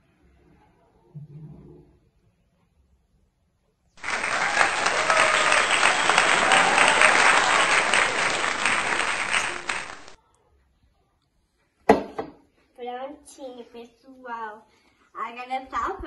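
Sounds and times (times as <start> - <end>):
crowd applause: 4.0 - 10.2.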